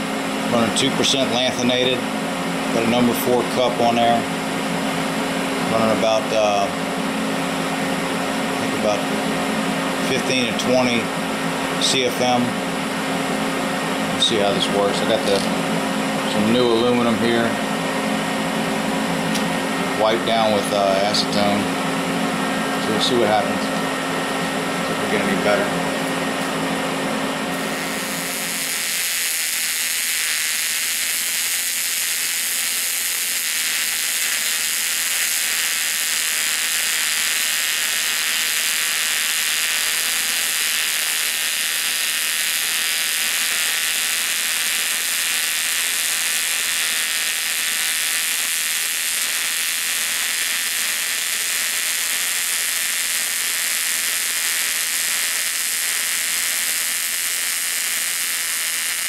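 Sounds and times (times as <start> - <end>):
welding arc hissing: 27.5 - 59.0.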